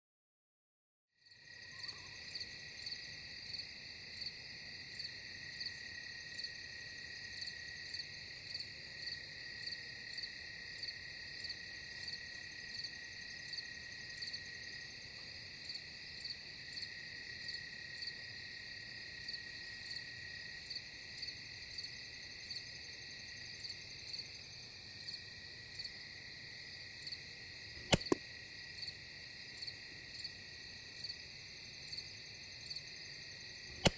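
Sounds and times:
insects trilling: 1.3 - 15.0
air rifle shot: 27.8 - 28.2.

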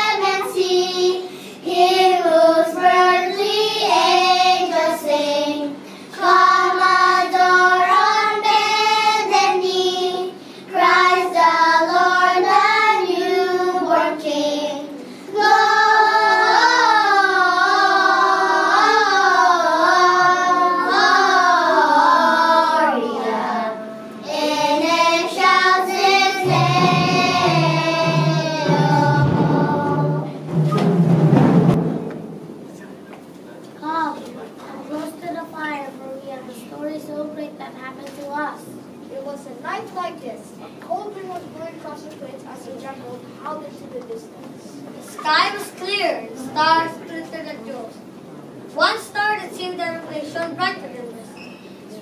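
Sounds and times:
children's choir singing: 0.0 - 31.9.

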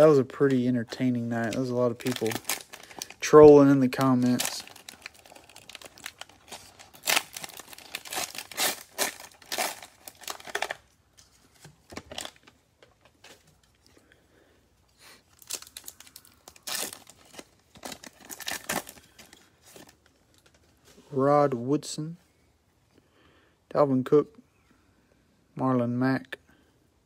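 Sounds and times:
foil wrappers crinkling and tearing: 0.0 - 10.9, 15.3 - 20.6
quiet handling of packs: 0.0 - 23.0.

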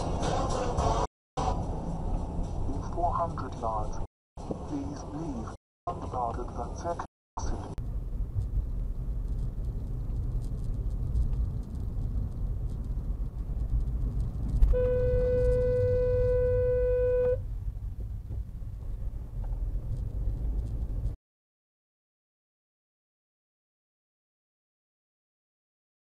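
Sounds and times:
car driving rumble: 7.4 - 21.2
car horn blast: 14.7 - 17.4.

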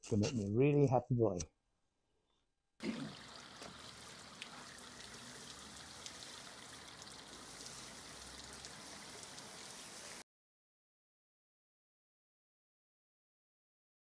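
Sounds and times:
water spattering and trickling: 2.8 - 10.2.

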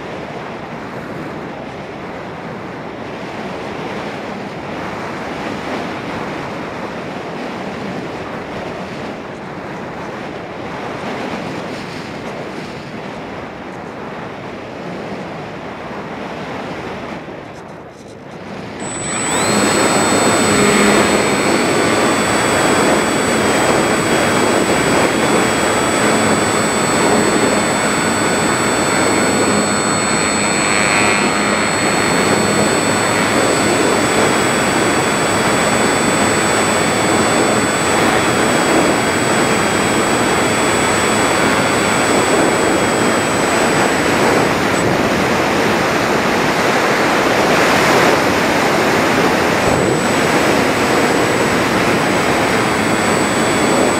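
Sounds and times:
propeller and airflow whirr: 17.6 - 53.9
thin high motor whine: 18.0 - 53.9.

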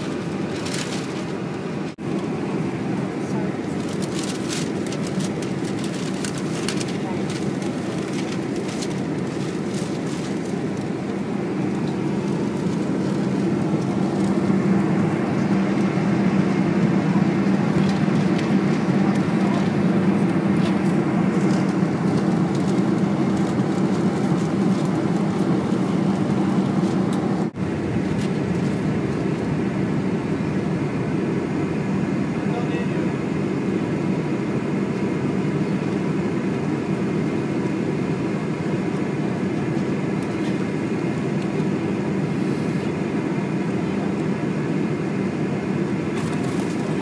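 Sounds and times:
jet engine drone in cabin: 0.0 - 47.0
deep hum: 8.6 - 34.0.

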